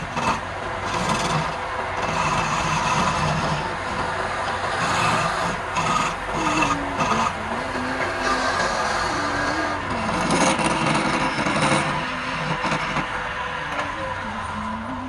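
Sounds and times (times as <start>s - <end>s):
chisel rasping on wood: 0.0s - 14.4s
lathe humming: 0.0s - 15.0s.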